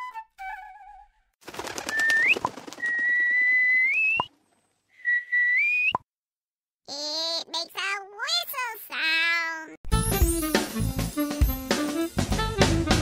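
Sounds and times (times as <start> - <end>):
whistled tones sliding upward: 1.9 - 4.3, 5.0 - 6.0.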